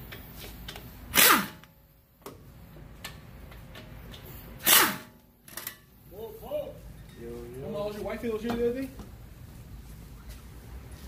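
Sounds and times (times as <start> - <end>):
air tool whining: 4.2 - 5.1.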